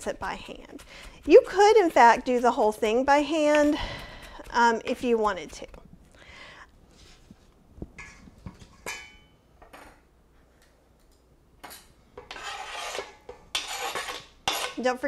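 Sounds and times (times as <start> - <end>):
knife scraping cutting board: 0.1 - 2.4, 3.4 - 5.8, 12.2 - 14.8.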